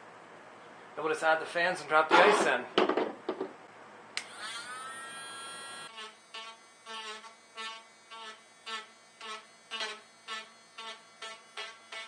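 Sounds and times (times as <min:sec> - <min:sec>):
rotary tool motor whine: 0:04.2 - 0:12.0.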